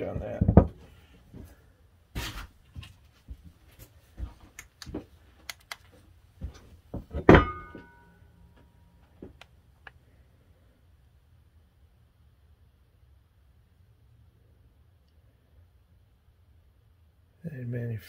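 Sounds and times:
metallic clank ringing: 7.2 - 8.9.

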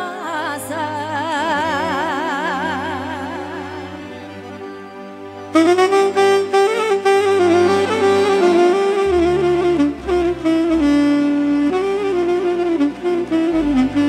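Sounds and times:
saxophone melody: 1.6 - 14.0
bass line: 5.6 - 14.0.

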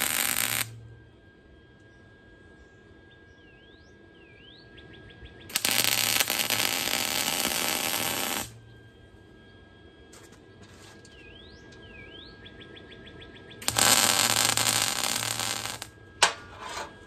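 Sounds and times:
arc welder sizzling: 0.0 - 0.8, 5.5 - 8.6, 13.6 - 17.0
faint bird chirps: 1.6 - 5.6, 8.6 - 13.7.

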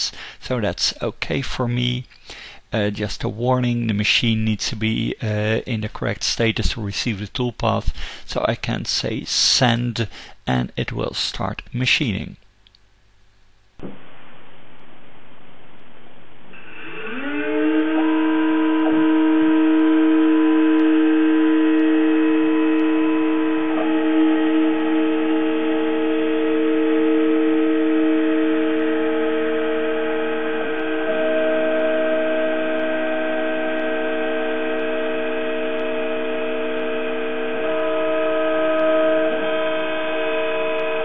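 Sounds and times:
milling machine spindle whine: 16.6 - 41.0.

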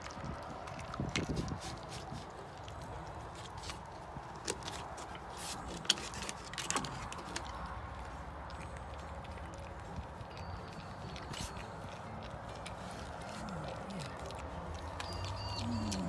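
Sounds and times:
dog gnawing on a chew: 0.0 - 16.0
teeth crunching clicks: 6.6 - 16.0.

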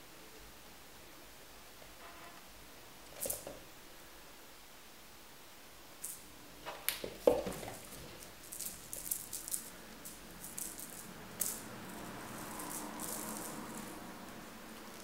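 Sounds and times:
cat batting toy ball: 6.7 - 14.0.

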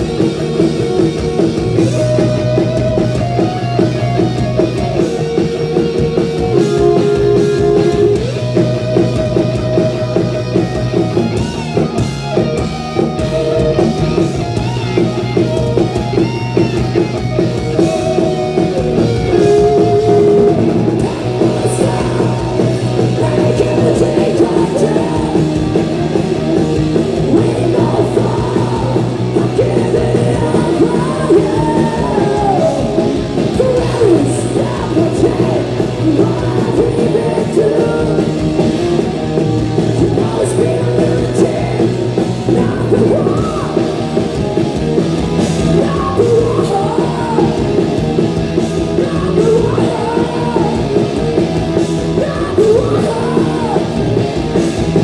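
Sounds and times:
hard rock band playing: 0.0 - 55.0
women singing and shouting: 27.3 - 38.4, 49.0 - 50.9, 52.2 - 54.0.

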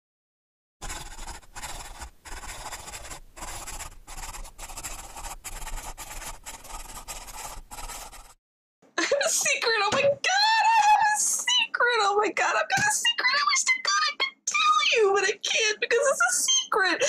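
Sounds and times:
pen scratching on paper: 0.8 - 8.4.

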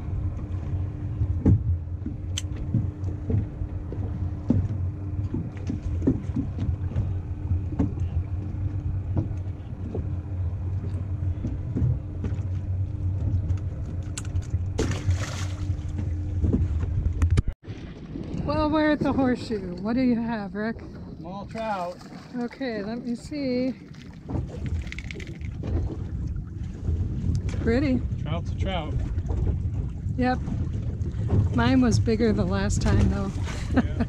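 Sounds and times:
low steady hum: 0.0 - 34.0
knocks and clicks of unhooking fish: 4.4 - 7.1, 24.3 - 26.0
fish splashing into water: 14.7 - 16.0.

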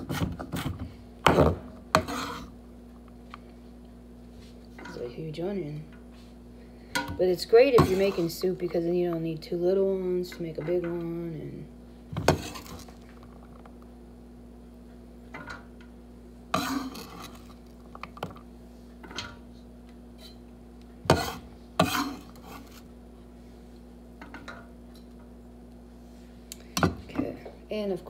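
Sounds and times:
onion scraped off board: 1.9 - 2.5, 12.3 - 12.9, 16.6 - 17.5, 21.1 - 22.9.

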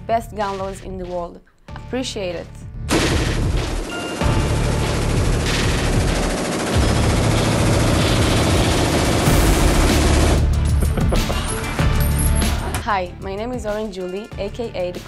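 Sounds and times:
machine gun firing bursts: 2.9 - 10.5.

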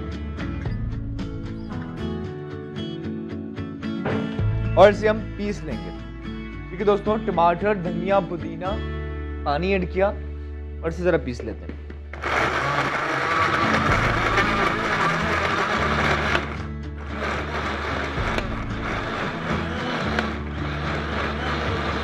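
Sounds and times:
background music: 0.0 - 22.0
electric blender running: 12.1 - 22.0.

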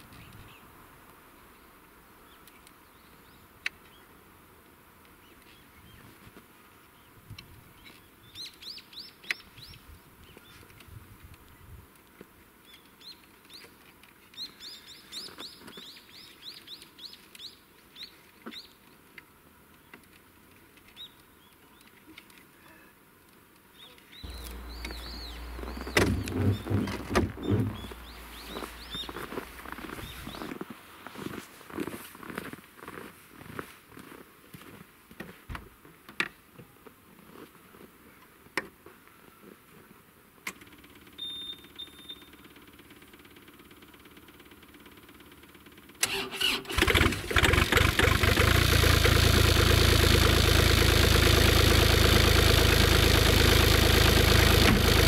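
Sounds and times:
songbird chirping: 6.8 - 10.8, 12.6 - 19.0, 23.7 - 31.4, 41.2 - 42.3
sharp knocks: 24.3 - 28.6
diesel engine starting and running: 24.3 - 30.4, 42.4 - 55.0.

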